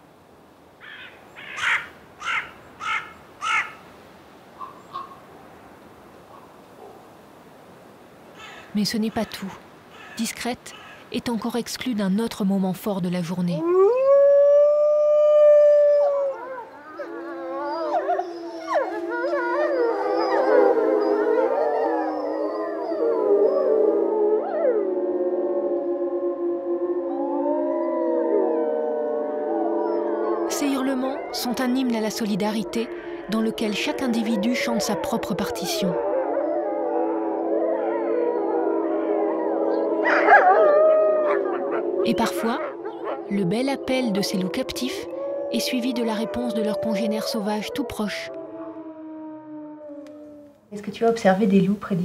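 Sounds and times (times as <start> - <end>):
crow calling harshly: 0.8 - 3.8, 8.4 - 9.2, 9.9 - 11.1
wolves howling in chorus: 13.6 - 50.5.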